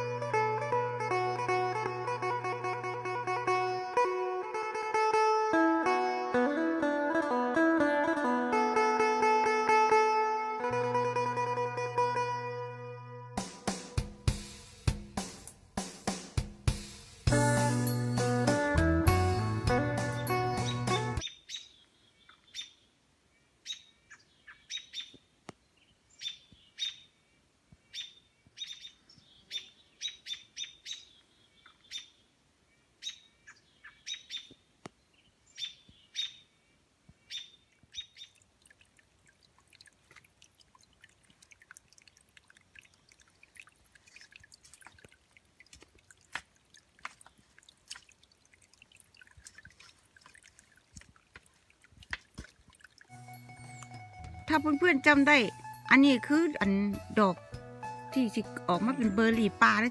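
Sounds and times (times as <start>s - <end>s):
songbirds chirping: 19.7s - 59.9s
faint trickle of water: 37.6s - 54.2s.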